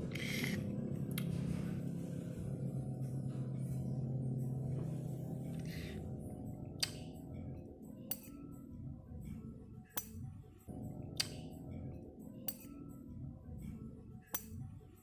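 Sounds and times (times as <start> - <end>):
quiet background music: 0.0 - 15.0
metal spoon clinking against bowl: 8.1 - 8.4, 12.4 - 12.8.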